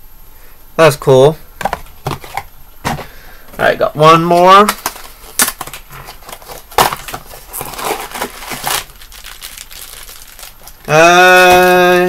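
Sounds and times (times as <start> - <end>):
packaging crinkling and tearing: 4.6 - 12.0.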